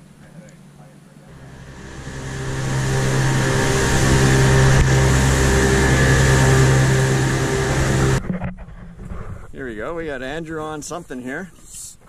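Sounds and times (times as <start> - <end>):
outboard motors running: 1.3 - 8.4.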